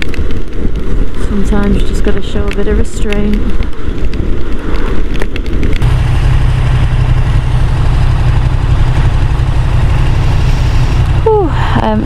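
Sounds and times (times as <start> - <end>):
wind: 0.0 - 12.0
tyres on wet road: 5.7 - 12.0
motorcycle engine idling: 5.8 - 12.0.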